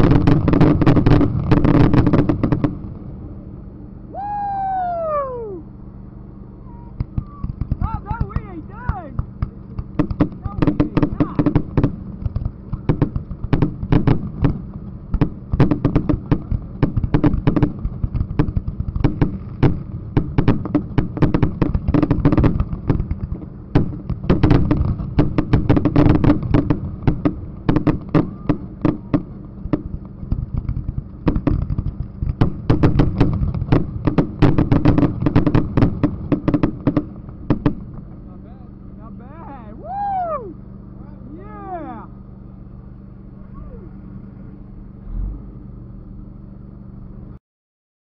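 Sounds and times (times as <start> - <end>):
fireworks bangs and crackles: 0.0 - 3.2, 6.8 - 40.2.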